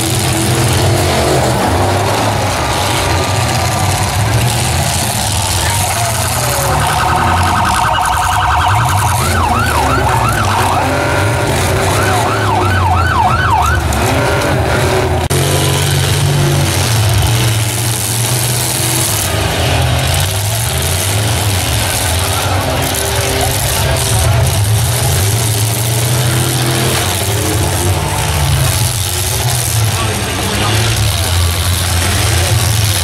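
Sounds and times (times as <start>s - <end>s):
vehicle engines running: 0.0s - 33.0s
electronic alarm warbling and whooping: 6.1s - 13.9s.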